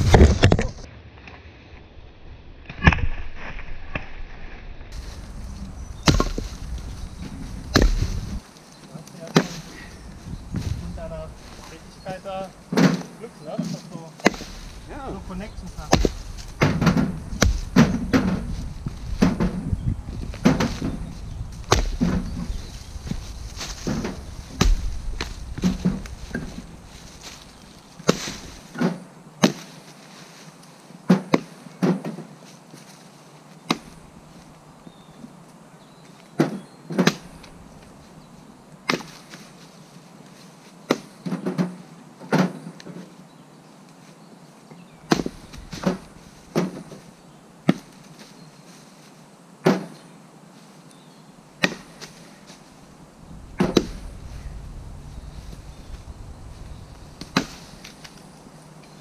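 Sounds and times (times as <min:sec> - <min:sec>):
axe splitting wood: 0:06.1 - 0:06.5, 0:07.7 - 0:08.2, 0:14.2 - 0:14.6, 0:15.9 - 0:18.5, 0:21.6 - 0:22.4, 0:23.9 - 0:24.9, 0:36.4 - 0:37.5, 0:45.1 - 0:46.8, 0:51.6 - 0:52.1, 0:53.6 - 0:54.1, 0:57.2 - 0:58.2.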